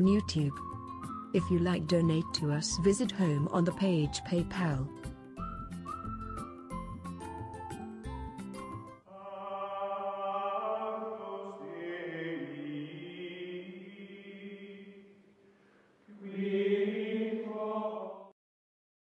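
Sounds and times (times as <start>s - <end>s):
wordless choral chanting: 9.1s - 15.2s, 16.1s - 18.4s.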